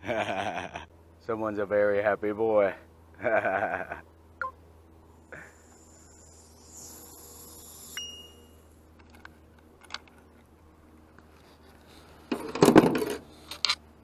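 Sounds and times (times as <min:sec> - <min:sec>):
metallic clink with ring: 0:07.2 - 0:08.6.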